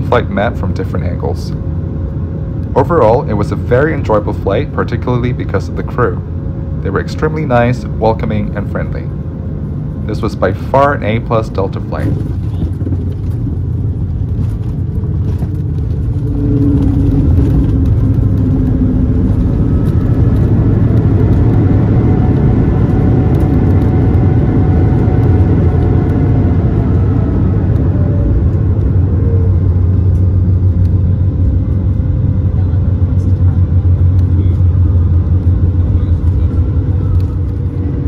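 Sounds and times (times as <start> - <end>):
gliding engine tones: 0.0 - 38.0
jet engine rumble and airflow: 0.0 - 38.0.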